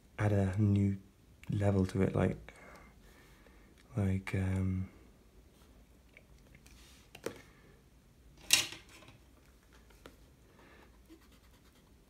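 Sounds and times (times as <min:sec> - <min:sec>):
drawing tools handled on desk: 0:08.4 - 0:09.2.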